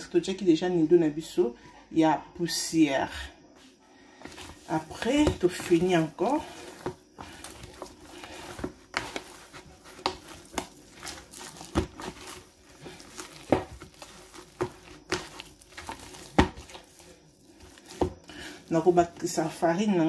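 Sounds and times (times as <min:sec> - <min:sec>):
hand kneading crumbly dough: 0:03.6 - 0:20.0.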